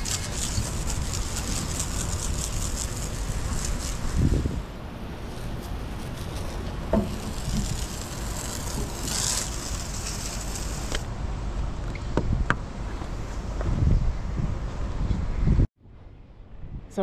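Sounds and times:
hose spray hissing on deck: 0:00.0 - 0:04.6, 0:05.3 - 0:11.1
wind noise on microphone: 0:00.0 - 0:17.0.

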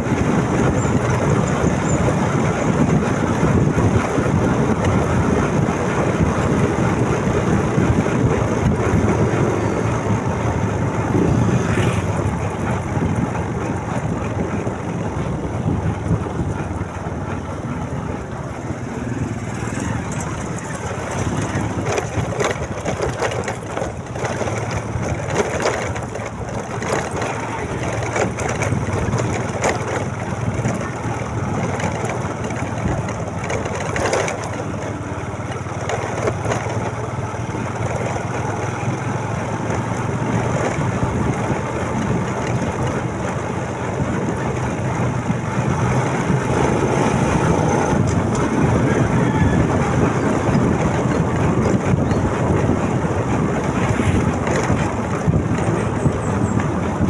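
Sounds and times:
motorcycle engine running: 0:00.0 - 0:57.0
road and wind noise: 0:00.0 - 0:57.0.

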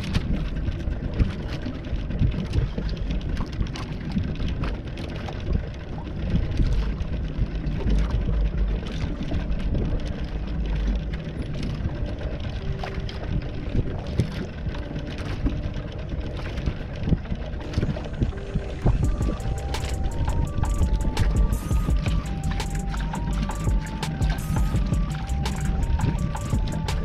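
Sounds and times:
low boat engine rumble: 0:00.0 - 0:27.0
water noise: 0:00.0 - 0:27.0
wind: 0:00.0 - 0:27.0
music: 0:07.9 - 0:27.0.

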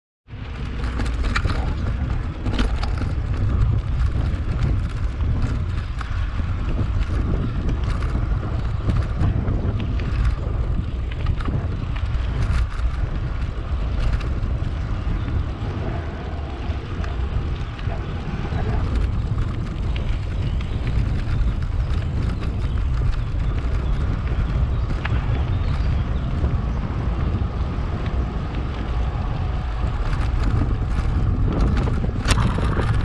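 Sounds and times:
wind buffeting microphone: 0:00.3 - 0:33.0
clicks and knocks from bike: 0:00.4 - 0:33.0.

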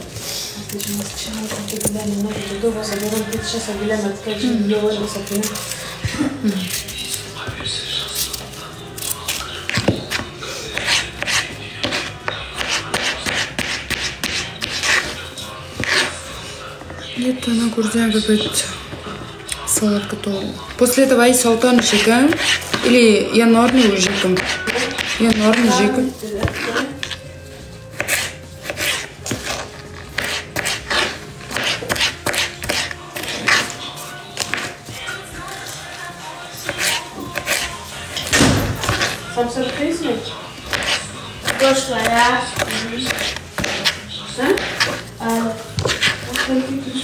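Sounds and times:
faint background music: 0:00.0 - 0:47.0
knife scraping cucumber skin: 0:08.1 - 0:15.2, 0:27.9 - 0:34.8, 0:36.6 - 0:39.8, 0:40.7 - 0:46.7
knife slicing cucumber on board: 0:28.0 - 0:33.8, 0:40.7 - 0:45.0, 0:45.8 - 0:46.5.

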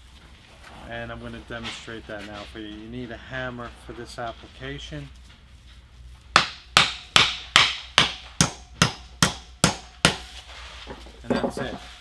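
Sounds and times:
hammer striking steel pin: 0:06.4 - 0:10.3.

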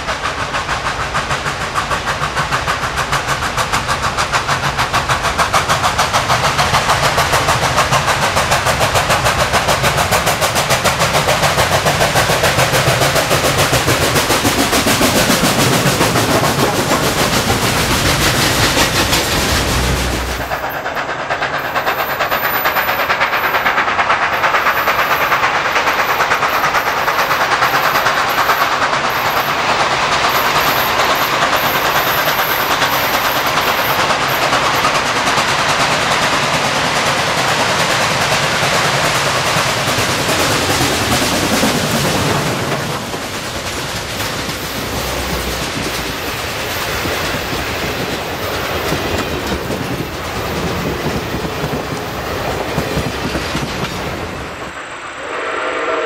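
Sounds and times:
steam locomotive chuffing: 0:00.0 - 0:56.0
train rolling over rails: 0:00.0 - 0:56.0.

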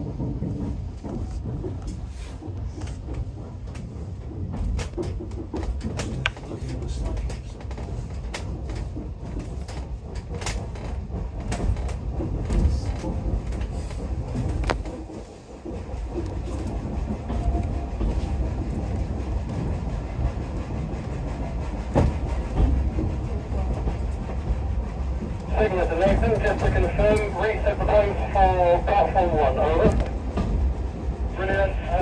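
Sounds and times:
wheels clicking over rail joints: 0:00.0 - 0:24.6
train wheels rumbling on rails: 0:00.0 - 0:32.0.

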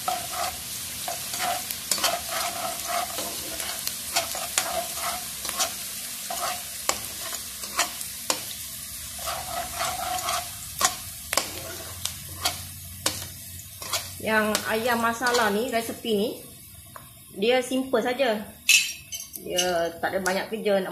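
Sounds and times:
metal spatula scraping pan: 0:00.0 - 0:08.6, 0:09.2 - 0:15.8
aromatics sizzling in hot oil: 0:00.0 - 0:20.9.

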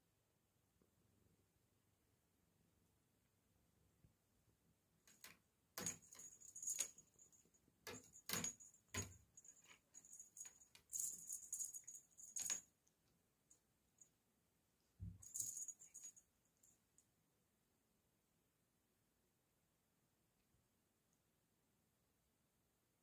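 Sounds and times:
cat toy rattling against door: 0:05.1 - 0:07.2, 0:07.9 - 0:12.6.

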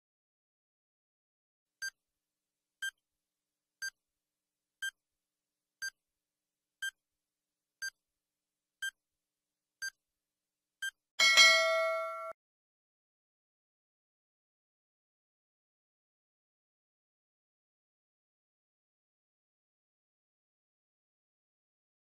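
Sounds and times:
timer ticking: 0:04.8 - 0:05.0, 0:06.8 - 0:07.0
loud ringing chime: 0:11.2 - 0:12.4.

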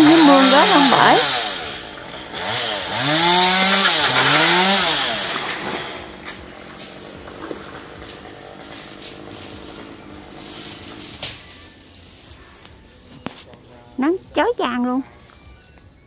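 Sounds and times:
chainsaw revving and idling: 0:00.0 - 0:11.4.

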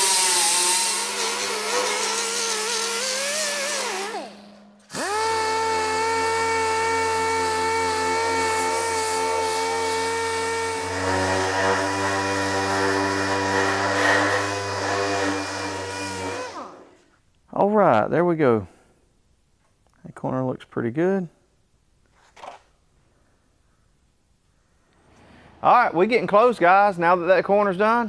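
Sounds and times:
grinder whining on sheet metal: 0:00.0 - 0:17.0.

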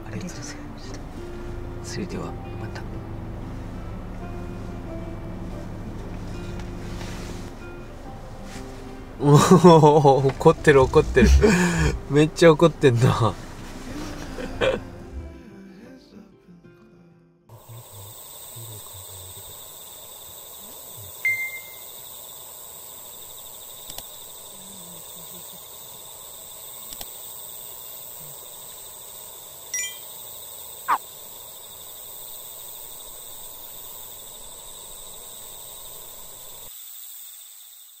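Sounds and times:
chorus of insects: 0:09.2 - 0:15.2, 0:17.5 - 0:38.0.

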